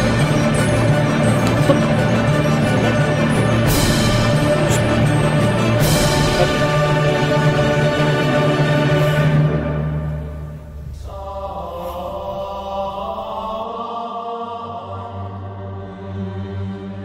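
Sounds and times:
orchestral music: 0.0s - 13.4s
men's choir chanting: 0.0s - 17.0s.

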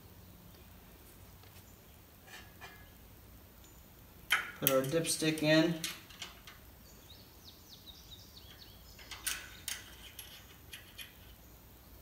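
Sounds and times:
dipstick metal clicks: 4.3s - 6.7s.

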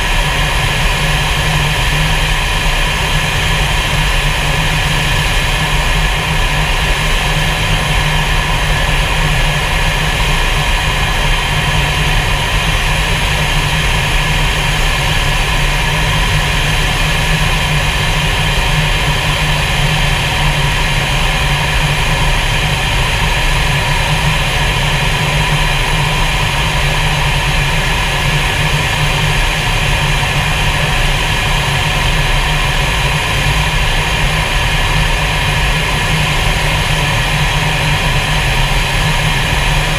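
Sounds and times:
jet engine noise: 0.0s - 39.9s.

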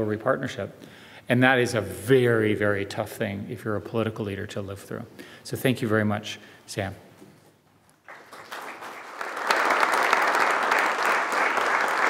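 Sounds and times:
audience applauding: 8.0s - 12.0s.

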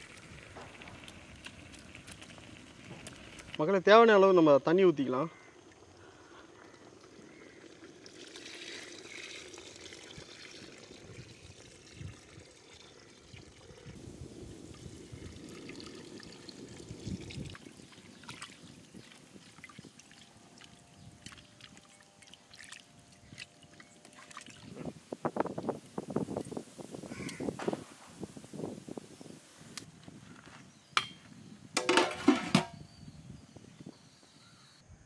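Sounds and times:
water pouring into pot: 0.0s - 3.6s, 5.4s - 26.5s.

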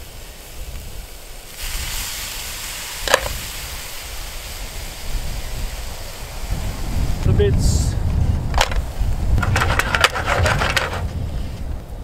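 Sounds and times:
food sizzling in a hot pan: 0.0s - 7.3s.

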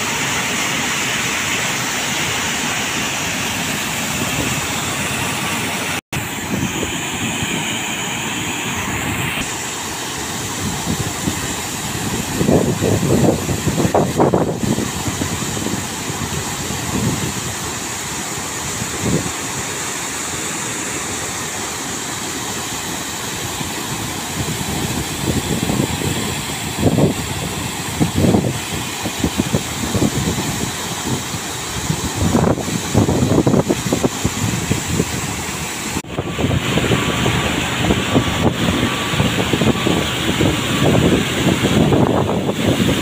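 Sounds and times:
steady machine hum: 0.0s - 43.0s
water gushing and splashing: 0.0s - 43.0s
low buffeting: 23.4s - 43.0s.

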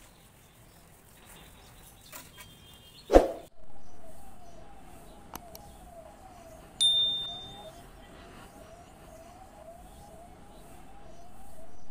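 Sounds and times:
bright bell ding: 6.8s - 7.7s
faint wavering tone: 6.8s - 8.0s.

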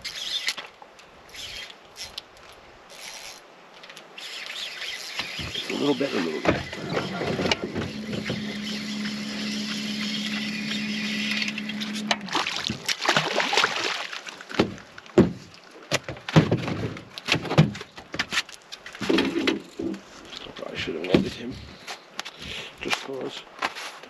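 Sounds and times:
steady hum: 4.8s - 12.5s
fish splashing at the surface: 12.2s - 14.4s.

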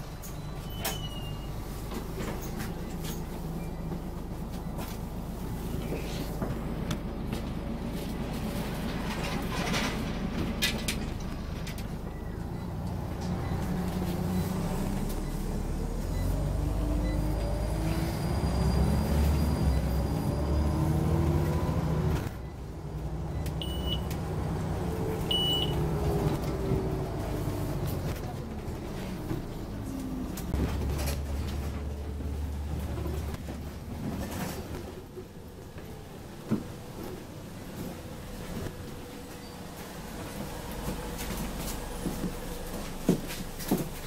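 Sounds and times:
bus engine rumble and whine: 0.0s - 44.0s
short high beeps: 23.6s - 24.1s.

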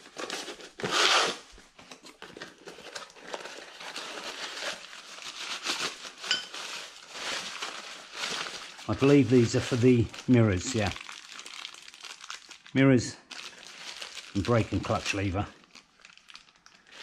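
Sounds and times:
cardboard box opened: 0.0s - 5.6s
plastic wrapping crinkling: 0.0s - 17.0s.

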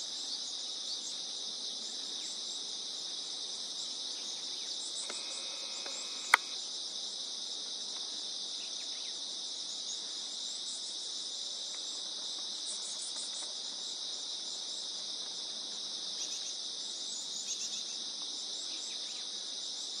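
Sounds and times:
insects chorus: 0.0s - 20.0s
sharp click: 5.8s - 6.6s.

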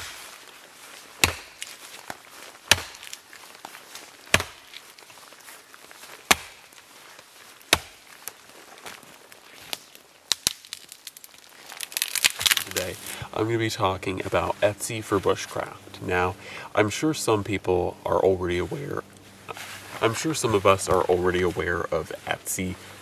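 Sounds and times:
axe chopping wood: 1.2s - 3.2s, 4.3s - 4.7s, 6.3s - 6.7s, 7.7s - 8.1s.

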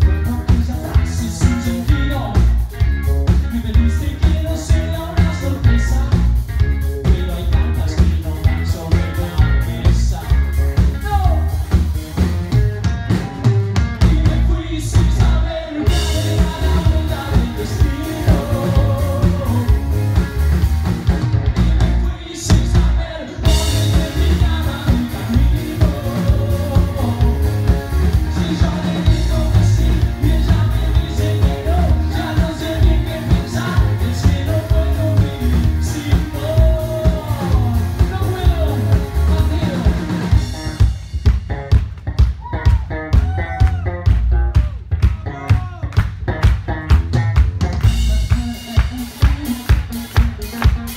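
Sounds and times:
male singer: 0.0s - 11.6s, 13.9s - 20.3s, 21.6s - 40.6s, 47.8s - 50.9s
bass guitar: 0.0s - 50.9s
drum kit: 0.0s - 50.9s
electric guitar: 0.0s - 50.9s.

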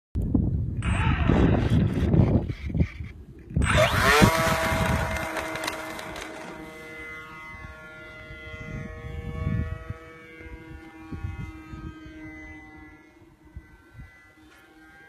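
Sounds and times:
model plane motor whine: 0.7s - 15.0s.

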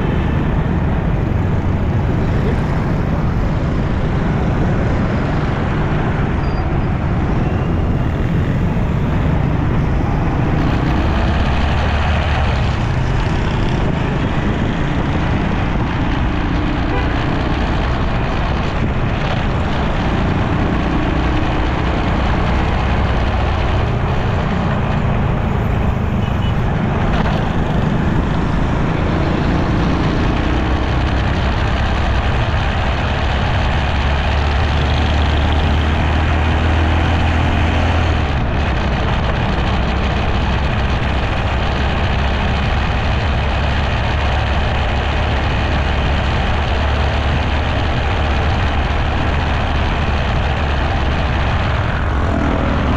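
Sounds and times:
city traffic: 0.0s - 52.9s
low engine hum: 0.0s - 52.9s
motorcycle engine running: 0.0s - 52.9s
road noise: 0.0s - 52.9s.

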